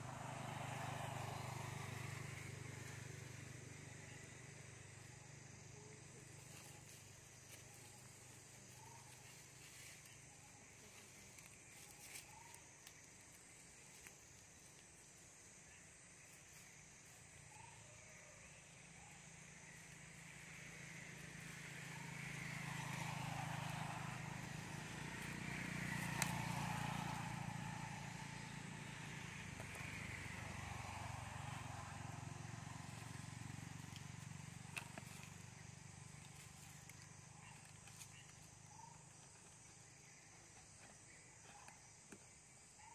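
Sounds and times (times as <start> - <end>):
vehicle engine passing by: 0.0 - 5.4, 19.3 - 38.9
insects: 0.0 - 42.9.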